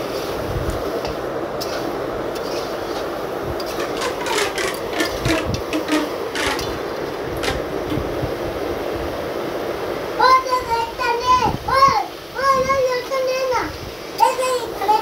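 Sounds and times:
chicken sizzling in a pan: 0.0s - 7.8s
spatula scraping a pan: 1.1s - 7.6s.

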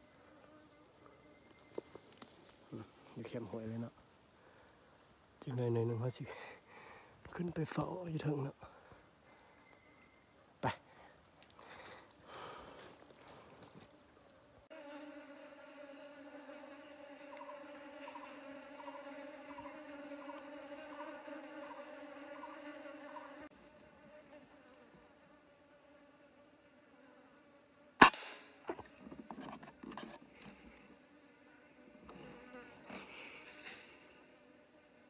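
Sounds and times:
insect buzzing: 0.0s - 35.0s
air rifle shot: 28.0s - 28.6s.

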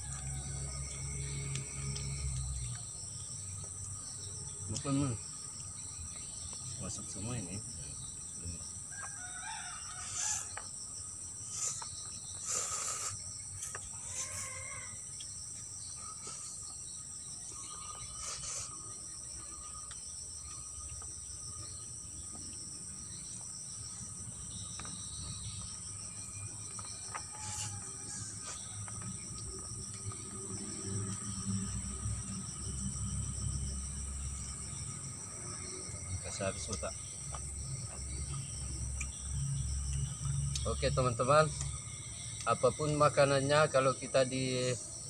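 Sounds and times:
rooster crowing: 0.0s - 2.4s, 8.9s - 10.7s, 14.0s - 15.2s, 26.7s - 29.6s
high-pitched insect drone: 0.0s - 45.0s.

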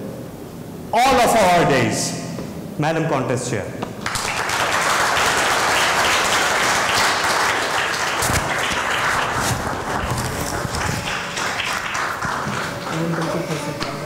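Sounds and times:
audience applauding: 4.0s - 14.0s.

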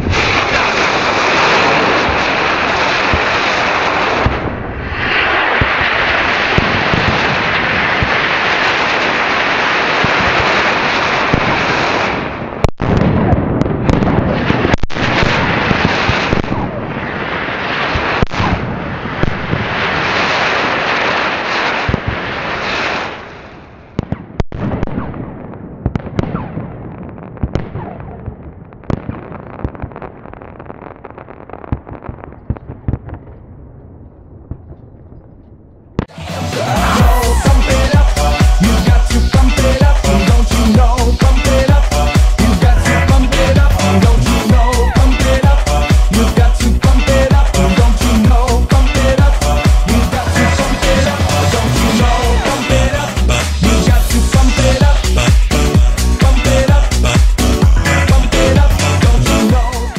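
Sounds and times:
rockets launching with rushing hiss: 0.0s - 13.0s, 13.8s - 23.8s
fireworks bangs and crackling: 0.0s - 59.9s.

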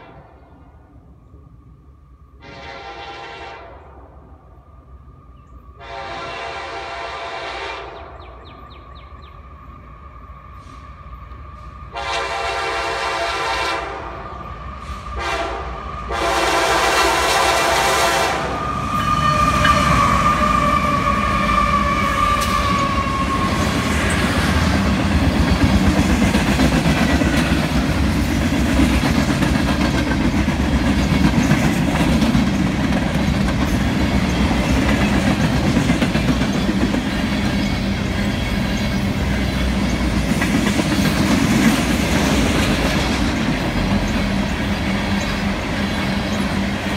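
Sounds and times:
locomotive whine: 0.0s - 46.9s
train horn blasts: 2.4s - 4.2s, 5.8s - 8.3s, 11.9s - 23.8s
boxcars clacking on track: 19.0s - 46.9s.

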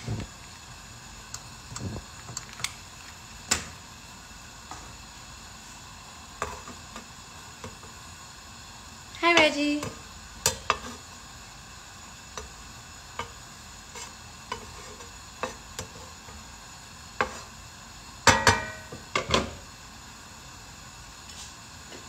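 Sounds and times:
faint frying sizzle: 0.0s - 22.0s
metal tongs clacking on frying pan: 9.4s - 10.9s.

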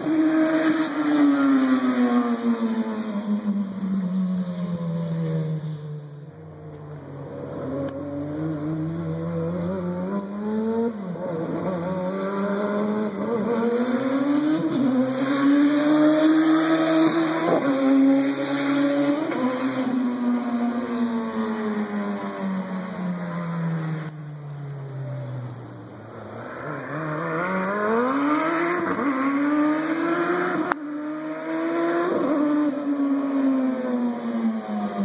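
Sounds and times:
motorcycle engine revving: 7.2s - 21.8s, 26.8s - 35.0s.

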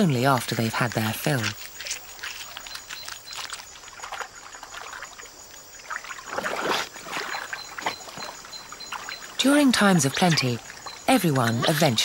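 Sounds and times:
otter chewing fish: 0.0s - 12.0s
water trickling and lapping: 0.0s - 12.0s
water splash: 0.4s - 12.0s.

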